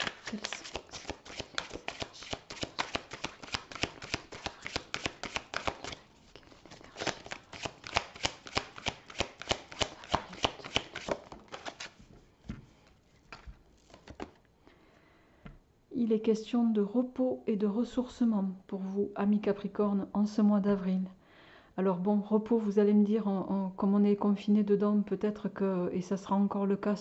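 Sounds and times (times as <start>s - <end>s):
cards being shuffled: 0.0s - 14.4s
card taps: 7.0s - 11.8s.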